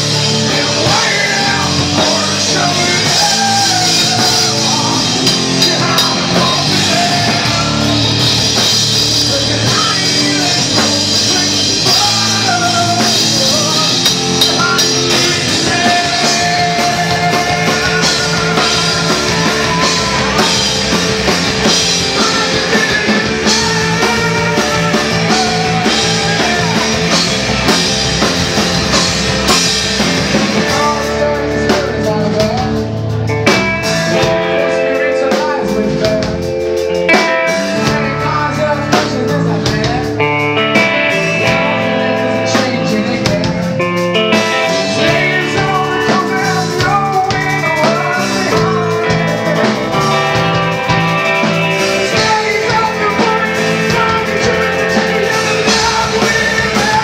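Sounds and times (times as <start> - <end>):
drum kit with cymbals: 0.0 - 57.0
electric guitar: 0.0 - 57.0
man singing: 0.0 - 57.0.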